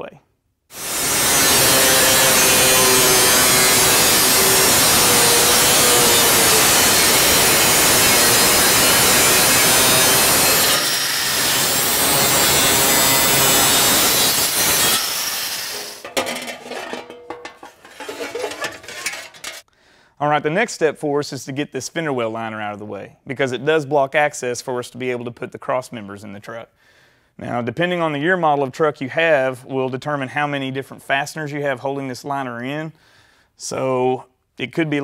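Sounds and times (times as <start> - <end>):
angle grinder cutting metal: 0.7 - 19.6
light clattering and knocks: 16.0 - 19.6.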